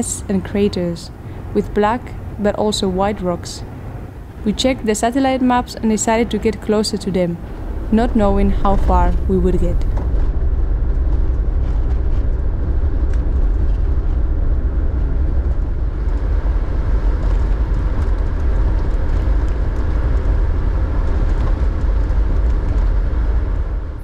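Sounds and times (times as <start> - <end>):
engine and tyres rumbling on gravel: 7.6 - 24.0.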